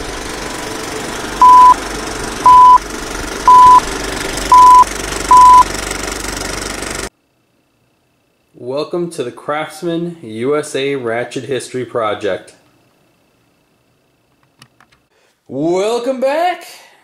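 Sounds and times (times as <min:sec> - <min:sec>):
short high beeps: 0:01.4 - 0:01.8, 0:02.5 - 0:02.8, 0:03.5 - 0:03.8, 0:04.5 - 0:05.6.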